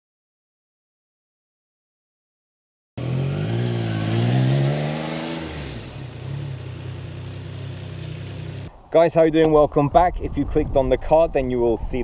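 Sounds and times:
motorcycle engine revving and idling: 3.0 - 8.7.

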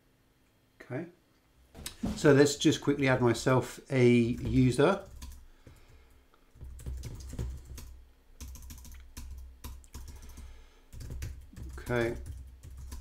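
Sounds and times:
keyboard typing: 4.2 - 13.0.

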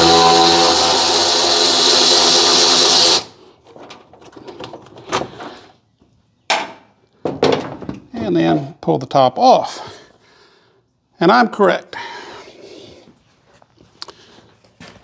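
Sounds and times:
power tool spinning a socket: 0.0 - 3.4.

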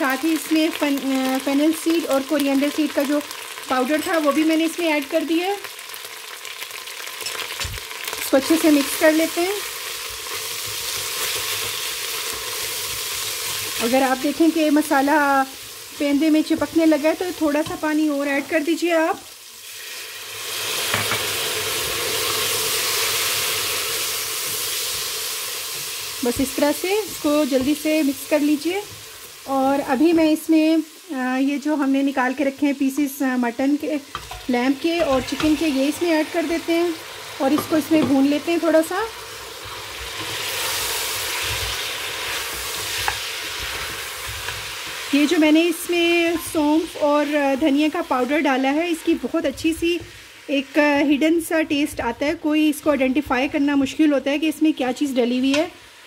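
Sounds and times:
masala sizzling in hot oil: 0.0 - 56.0
spatula stirring in pot: 39.2 - 48.3.

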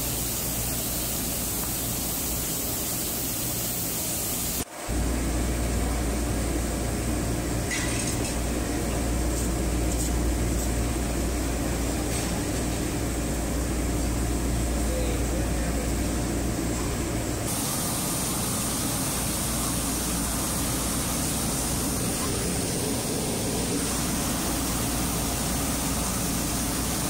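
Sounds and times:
rushing air hiss: 0.0 - 4.8, 17.5 - 27.0.

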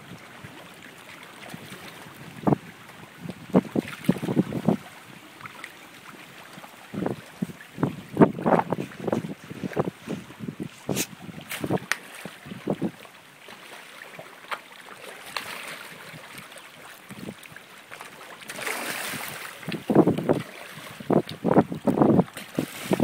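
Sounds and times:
water splashing: 0.0 - 23.0
wind on microphone: 1.6 - 5.3, 6.4 - 13.1, 18.7 - 23.0.

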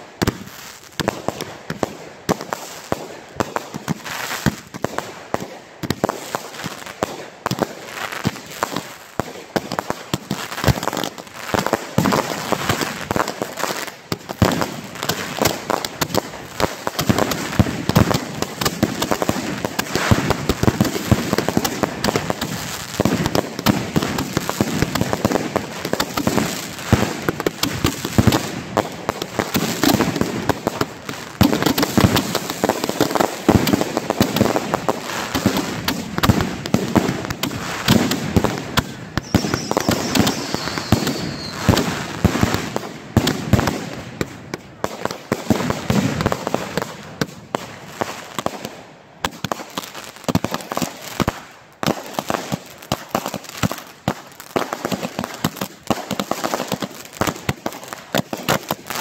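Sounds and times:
fireworks launching and banging: 0.0 - 59.0
falling firework whistle: 39.2 - 42.0.

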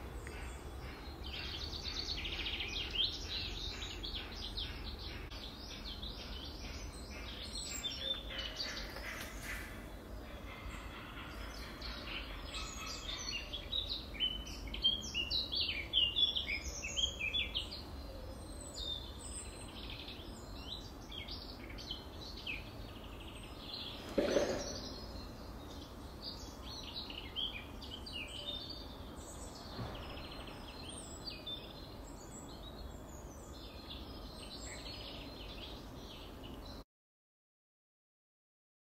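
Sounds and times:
outdoor background noise: 0.0 - 36.8
small birds chirping: 0.0 - 36.8
sharp knock: 24.1 - 25.0.

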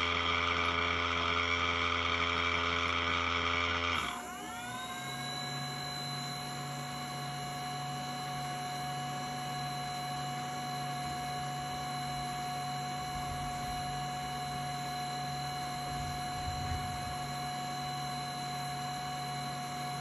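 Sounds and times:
fans humming with high whine: 0.0 - 20.0.

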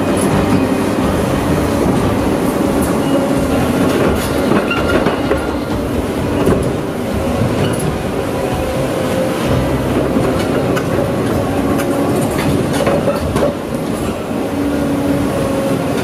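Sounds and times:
metallic squeal: 0.0 - 13.4
excavator engine running: 0.0 - 16.0
steel rail clanking and scraping: 0.0 - 16.0.

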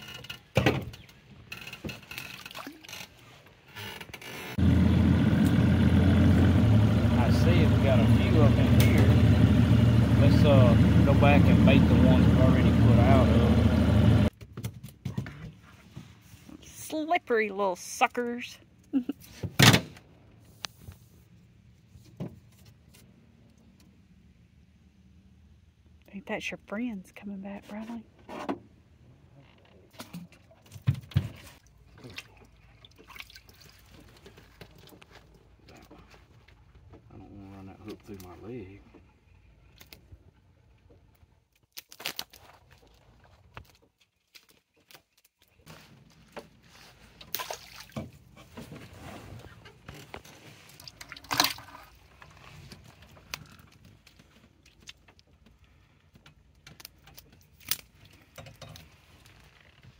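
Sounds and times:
water splashing and dripping: 2.1 - 3.2, 31.4 - 35.0, 47.2 - 48.2, 50.7 - 52.1
loud wet clatter: 47.3 - 48.2, 50.8 - 52.3.

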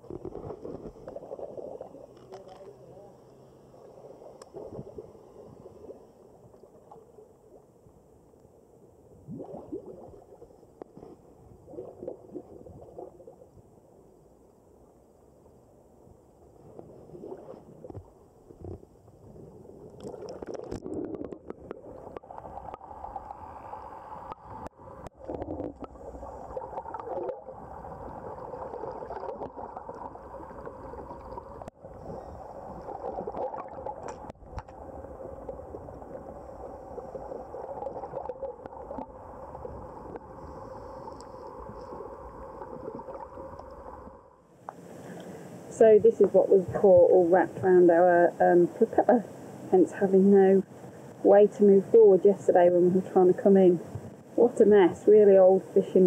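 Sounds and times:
muffled water gurgling underwater: 9.2 - 10.5, 16.6 - 44.2.

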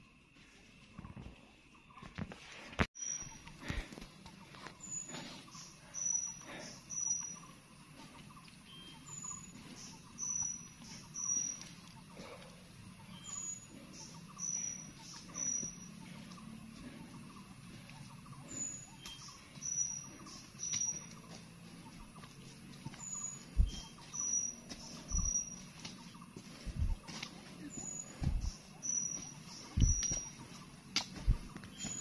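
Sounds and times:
bird whistling song: 8.7 - 11.7, 18.5 - 21.2, 22.9 - 25.8, 27.7 - 30.5, 31.2 - 32.0
footsteps on wet leaves: 20.2 - 32.0
hiking pole taps: 29.7 - 30.3.

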